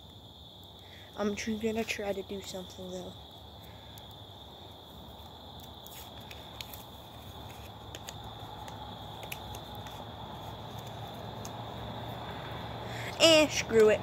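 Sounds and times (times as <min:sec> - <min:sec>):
high insect drone: 0:00.0 - 0:14.0
tape roll clicks: 0:05.6 - 0:10.0.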